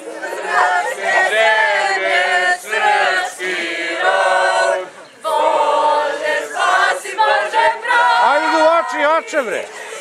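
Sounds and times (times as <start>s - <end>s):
young voices singing in unison: 0.0s - 10.0s.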